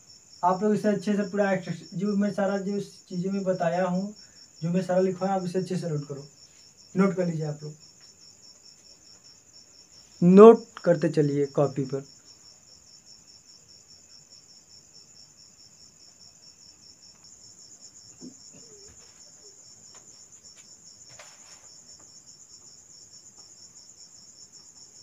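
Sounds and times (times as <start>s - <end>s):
insects trilling: 0.0s - 25.0s.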